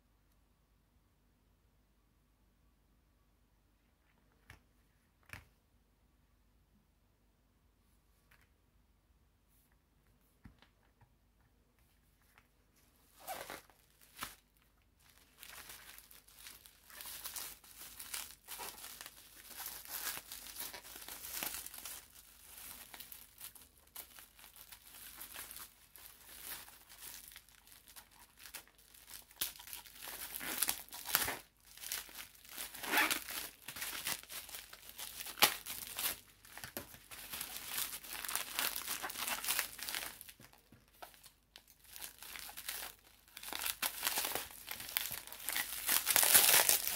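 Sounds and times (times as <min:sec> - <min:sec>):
bubble wrap crinkling: 0:12.8 - 0:46.9.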